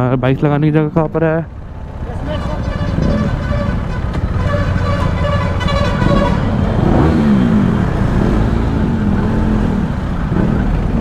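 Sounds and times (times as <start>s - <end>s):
motorcycle engine low rumble: 0.0s - 11.0s
horn-like tone: 2.5s - 7.1s.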